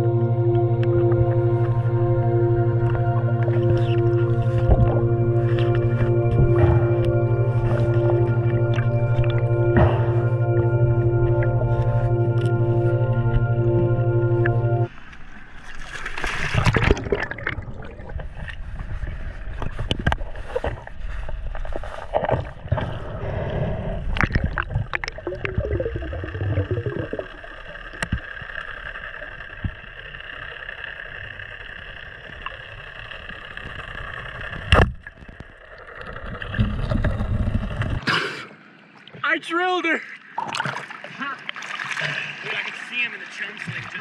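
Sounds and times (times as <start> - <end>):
underwater bubbling: 0.0 - 39.2
splash into water: 15.6 - 18.2.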